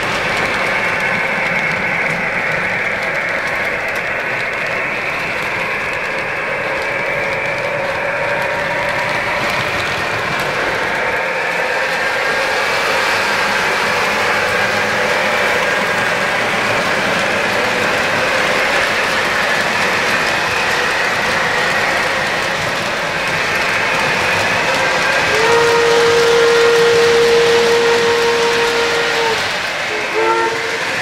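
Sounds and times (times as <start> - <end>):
model train running rumble: 0.0 - 31.0
train whistle: 24.5 - 31.0.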